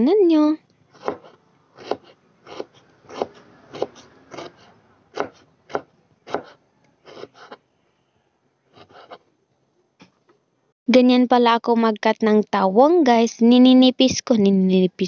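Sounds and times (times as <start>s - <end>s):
knife slicing on cutting board: 0.9s - 7.6s, 8.7s - 9.3s.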